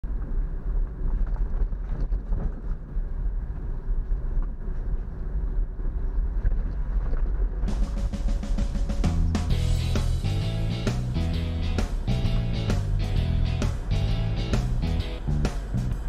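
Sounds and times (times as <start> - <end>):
vehicle engine and road rumble: 0.0 - 16.0.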